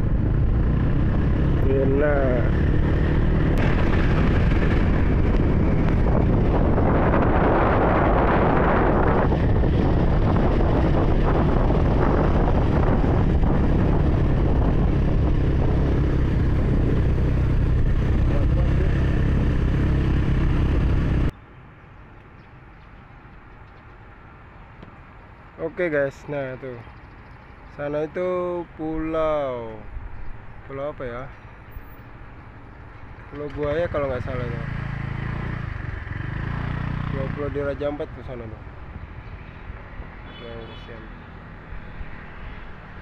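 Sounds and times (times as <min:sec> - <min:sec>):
motorcycle engine rumble: 0:00.0 - 0:21.3
wind rushing over microphone: 0:00.0 - 0:21.3.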